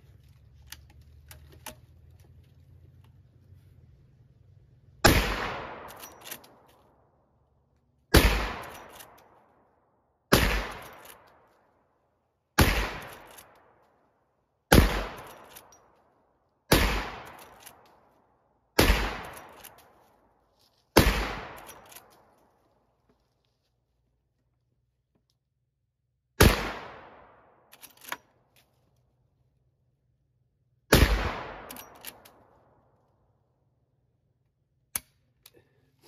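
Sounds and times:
rifle shots: 5.0s - 6.4s, 8.1s - 9.2s, 10.3s - 11.3s, 12.6s - 13.7s, 14.7s - 15.6s, 16.7s - 17.7s, 18.8s - 19.7s, 21.0s - 22.1s, 26.4s - 27.6s, 30.9s - 32.3s.

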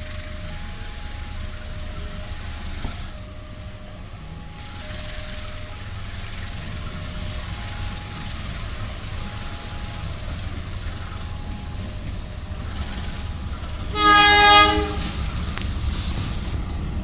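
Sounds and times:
locomotive engine rumble: 0.0s - 17.0s
train horn blast: 13.8s - 15.3s.

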